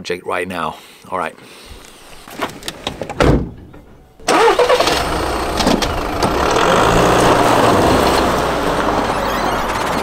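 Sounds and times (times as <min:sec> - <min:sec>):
thump: 0:03.1 - 0:03.8
van engine starting and running: 0:04.1 - 0:10.0.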